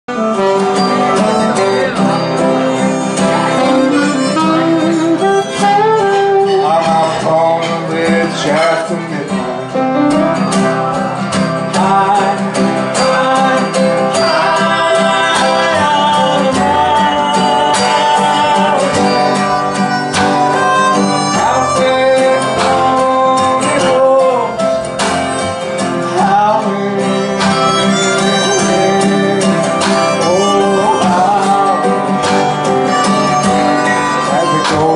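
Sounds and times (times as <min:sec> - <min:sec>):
harmonica bending notes: 0:00.1 - 0:34.9
strummed acoustic guitars: 0:00.1 - 0:34.9
upright bass: 0:00.1 - 0:34.9
drums: 0:09.5 - 0:26.6.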